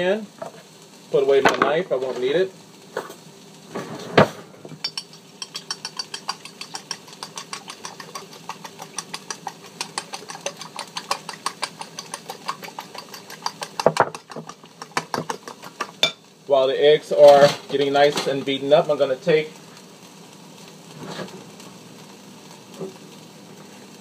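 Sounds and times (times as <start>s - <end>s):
utensil clicking against bowl: 4.8s - 16.0s.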